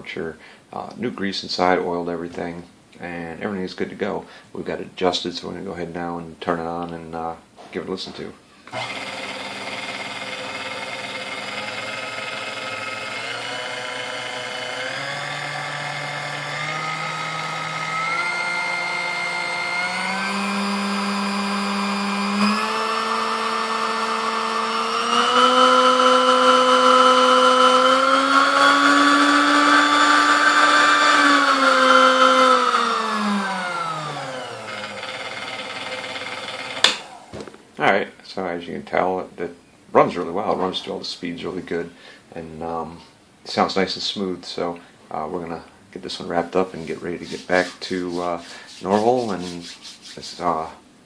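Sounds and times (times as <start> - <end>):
stand mixer motor whining: 8.7 - 37.3.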